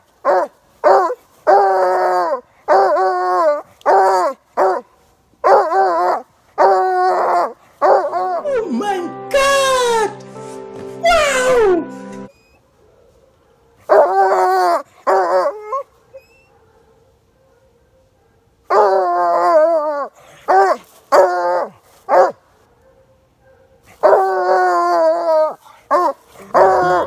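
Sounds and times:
dog barking: 12.8s - 14.2s, 16.0s - 19.0s, 22.1s - 24.3s, 25.9s - 27.0s
hound baying: 20.5s - 27.0s.

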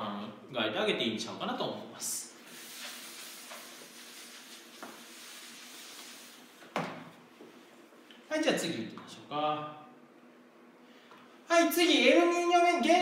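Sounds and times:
eraser scrubbing whiteboard: 2.4s - 6.6s.

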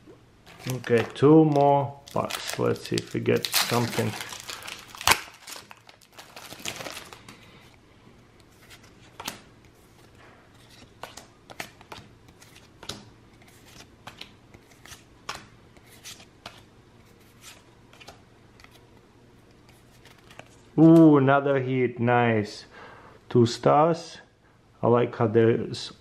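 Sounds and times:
card rustling: 0.4s - 7.7s, 19.6s - 21.1s
trading cards flipped by hand: 8.4s - 19.0s.

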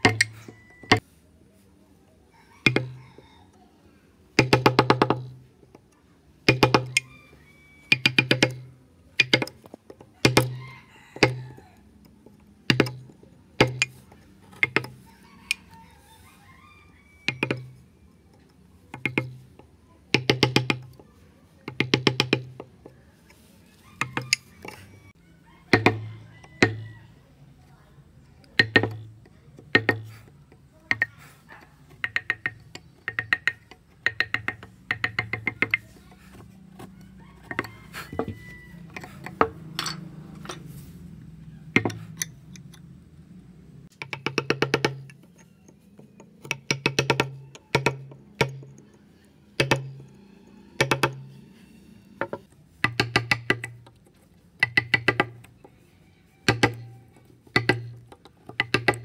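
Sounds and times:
mallet tapping chisel into wood: 0.0s - 1.0s, 2.6s - 3.0s, 4.4s - 5.4s, 6.4s - 7.1s, 7.9s - 10.6s, 11.2s - 11.6s, 12.7s - 15.6s, 17.3s - 17.8s, 18.9s - 21.0s, 21.6s - 22.7s, 24.0s - 24.8s, 25.7s - 26.0s, 26.6s - 26.8s, 28.5s - 31.2s, 31.9s - 39.9s, 41.8s - 42.4s, 43.8s - 48.9s, 49.6s - 50.2s, 50.8s - 51.4s, 52.2s - 55.7s, 56.4s - 59.0s.

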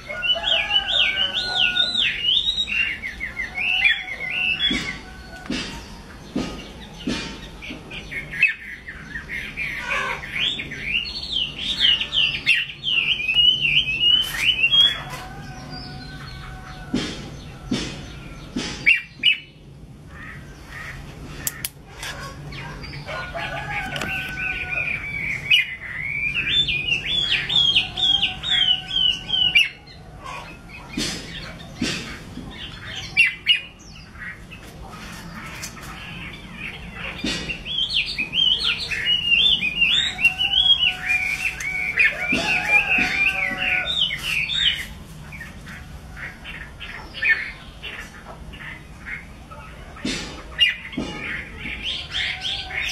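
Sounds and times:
sharp clicks: 21.4s - 22.1s
bird singing whistled notes: 24.6s - 29.8s.

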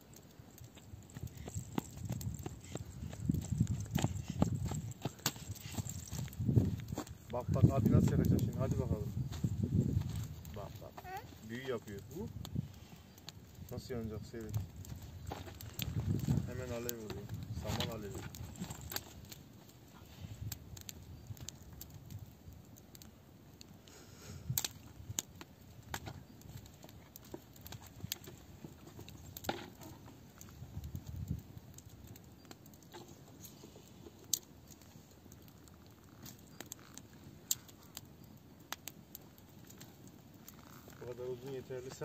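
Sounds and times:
campfire twigs crackling: 0.0s - 42.0s.

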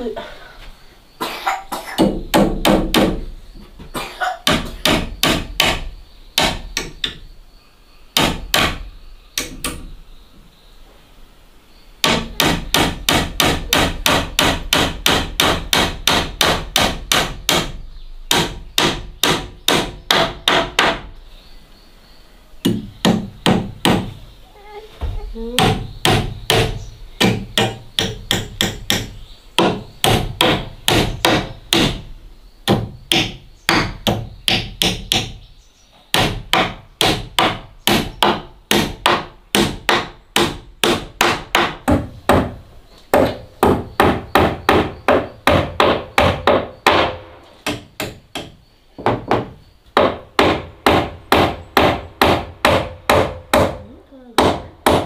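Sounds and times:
hammer driving nails into wood: 2.0s - 3.2s, 4.5s - 7.2s, 8.2s - 8.8s, 9.4s - 9.9s, 12.0s - 21.1s, 25.6s - 32.0s, 32.7s - 35.4s, 36.1s - 53.8s, 54.4s - 55.0s.

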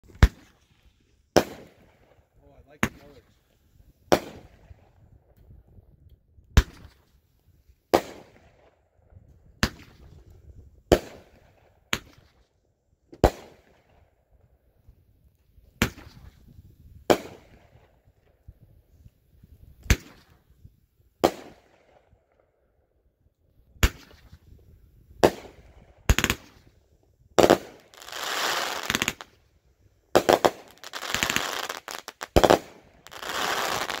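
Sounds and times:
firework crackling: 27.4s - 29.4s, 30.2s - 34.0s.

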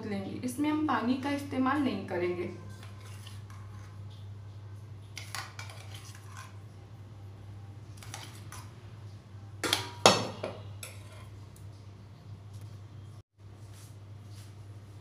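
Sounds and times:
metal spoon scraping steel bowl: 2.5s - 4.1s, 5.2s - 6.6s, 10.7s - 11.4s.

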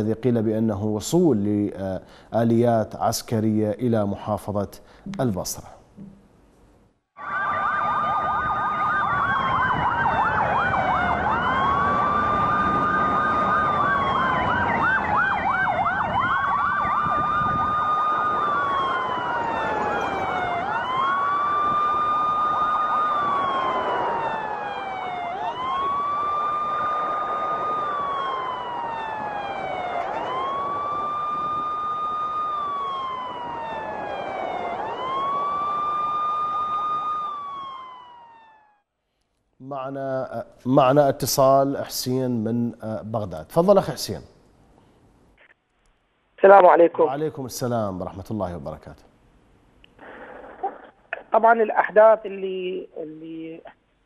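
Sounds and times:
traffic noise: 4.8s - 38.3s, 46.4s - 53.9s
fast-warbling siren: 7.2s - 38.8s
wailing vehicle siren: 7.2s - 38.8s.

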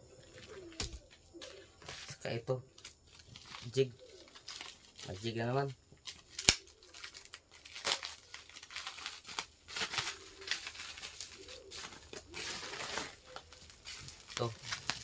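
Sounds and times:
plastic packet crinkling: 2.8s - 5.4s, 6.0s - 15.0s.

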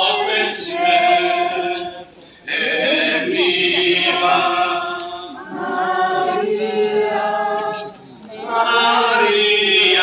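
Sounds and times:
crowd singing a hymn: 0.0s - 10.0s.

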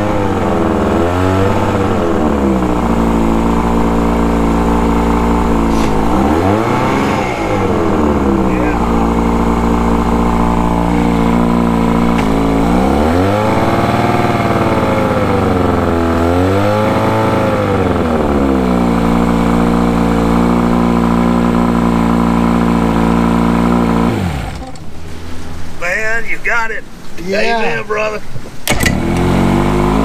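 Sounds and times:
motor running down to a stop: 0.0s - 24.9s, 28.7s - 30.0s
outboard motor idling and revving: 0.0s - 25.8s, 28.6s - 30.0s.

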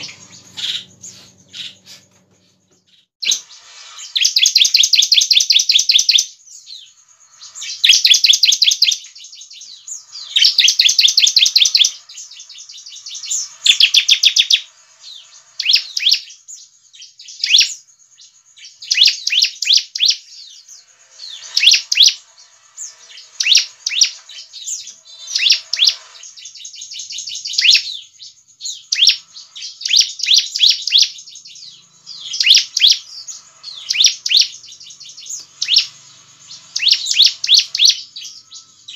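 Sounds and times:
bird chattering calls: 0.0s - 2.6s, 20.8s - 22.2s, 22.8s - 28.0s.

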